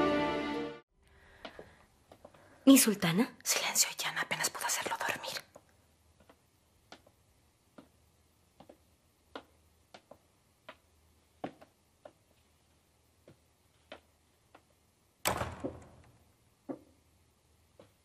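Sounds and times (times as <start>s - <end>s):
soft footsteps: 1.3s - 2.6s, 4.9s - 14.9s, 16.6s - 18.0s.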